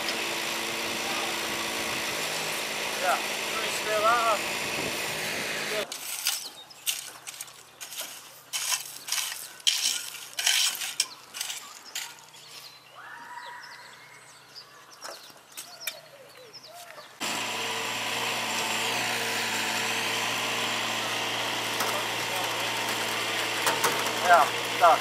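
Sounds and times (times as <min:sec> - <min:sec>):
mini excavator engine running: 0:00.0 - 0:05.9, 0:17.2 - 0:25.0
rakes scraping through crushed stone: 0:00.1 - 0:12.8, 0:17.5 - 0:25.0.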